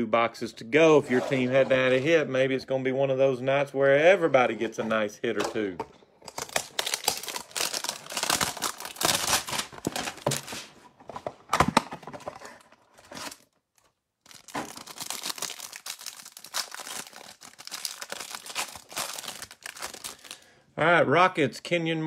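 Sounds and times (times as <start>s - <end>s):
plastic wrapper crinkling: 6.2s - 10.7s, 13.1s - 20.5s.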